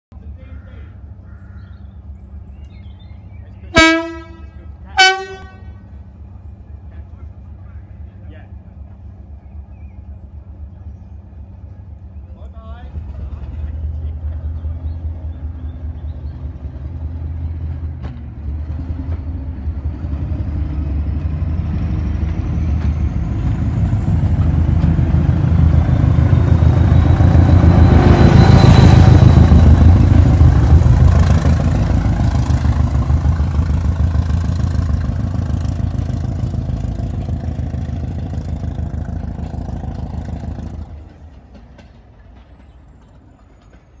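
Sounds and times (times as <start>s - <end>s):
diesel train engine thumping: 1.9s - 44.0s
train whine rising in pitch: 21.4s - 37.8s.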